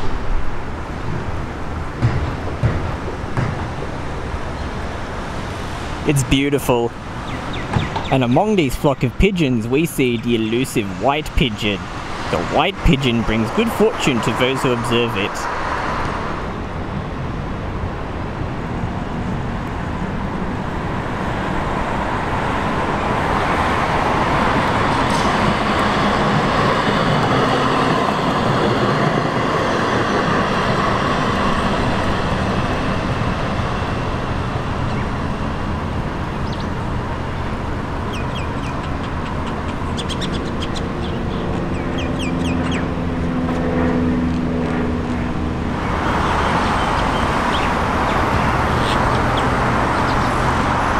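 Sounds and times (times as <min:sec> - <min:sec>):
street traffic: 0:00.0 - 0:50.9
tram rumbling on tracks: 0:00.0 - 0:50.9
birds chirping: 0:05.9 - 0:15.6, 0:34.4 - 0:35.3, 0:36.1 - 0:43.5, 0:45.7 - 0:50.9.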